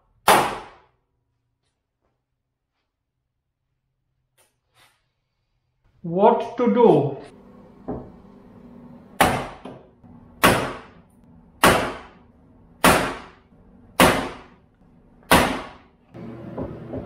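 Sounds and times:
sledgehammer striking wooden block: 10.4 - 11.0, 11.6 - 12.2, 12.8 - 13.4, 14.0 - 14.6, 15.3 - 15.9.

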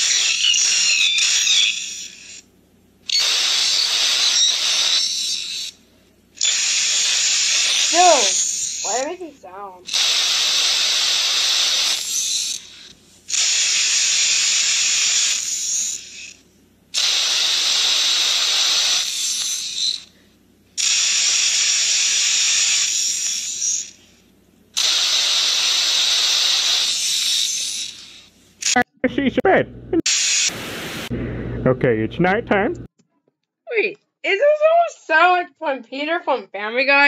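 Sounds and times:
phone playing hissing noise: 6.4 - 15.9, 17.0 - 19.6, 24.8 - 28.8, 30.1 - 31.3.

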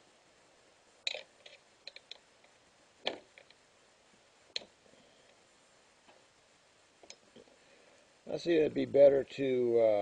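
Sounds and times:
clicks of handling parts: 1.0 - 3.6.

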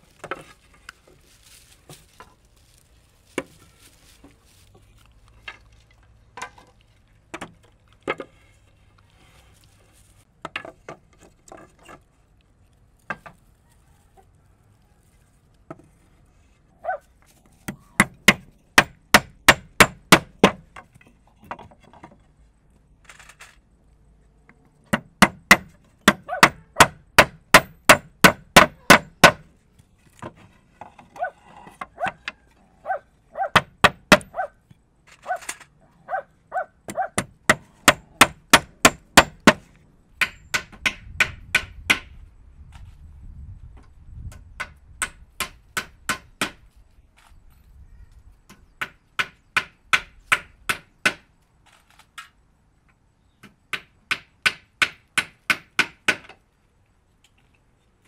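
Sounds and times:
hammer driving nails into wood: 17.7 - 20.8, 24.9 - 29.5, 37.2 - 42.1.

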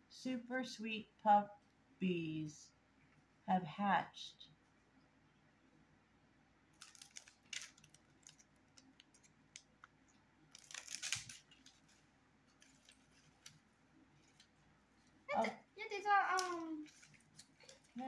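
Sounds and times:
packaging crinkling rustle: 6.7 - 15.2, 16.3 - 18.0.

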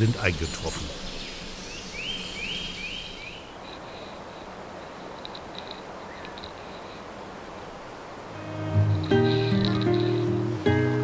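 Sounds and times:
outdoor background hiss: 0.0 - 11.0
faint high ticks: 3.6 - 7.0
songbird rising notes: 8.0 - 11.0.

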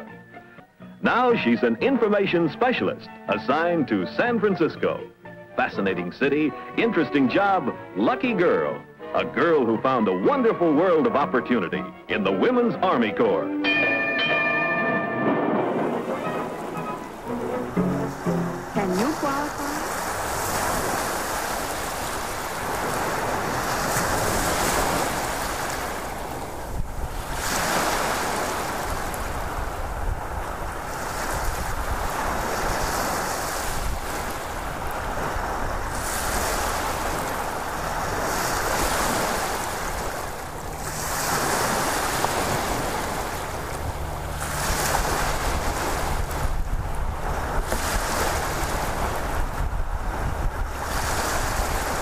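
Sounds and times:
ocean waves washing in: 13.7 - 52.0.

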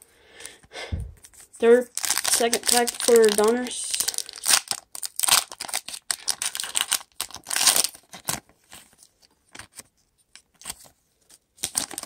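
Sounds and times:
foil wrapper crinkling: 1.3 - 9.9, 11.6 - 12.0.

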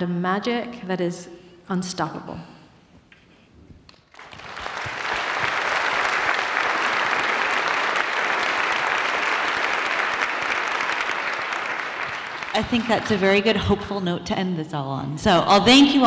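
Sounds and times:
large audience applauding: 3.9 - 13.6.

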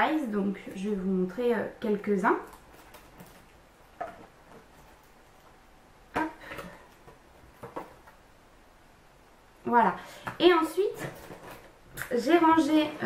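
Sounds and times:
plastic sleeves clicking and rustling: 2.5 - 5.6.

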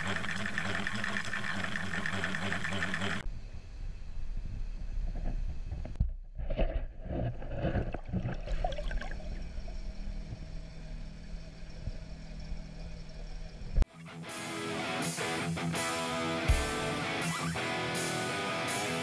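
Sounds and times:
splashy turbulence: 0.0 - 3.2, 7.5 - 13.0
steady low hum: 0.0 - 13.8
low rumble: 3.2 - 13.8
water rushing and gurgling: 7.6 - 13.1.

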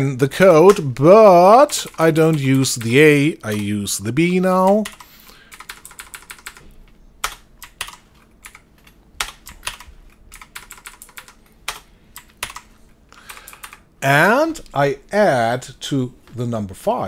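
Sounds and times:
computer keyboard typing: 0.4 - 3.8, 4.5 - 13.9.

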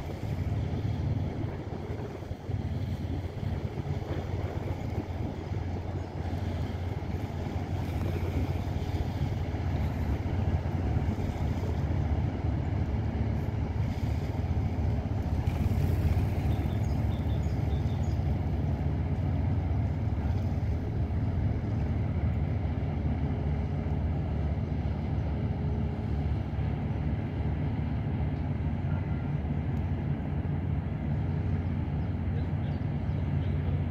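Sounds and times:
wind on microphone: 0.0 - 18.6
boat diesel engines droning: 0.0 - 33.9.

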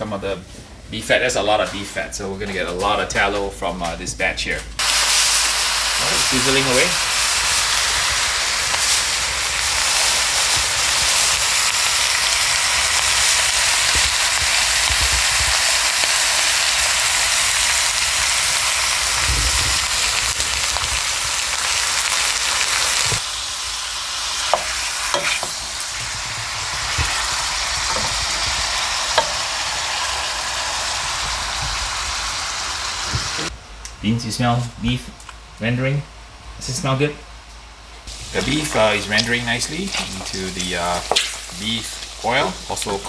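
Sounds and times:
fat sizzling in a pot: 4.8 - 33.5, 38.0 - 43.0.

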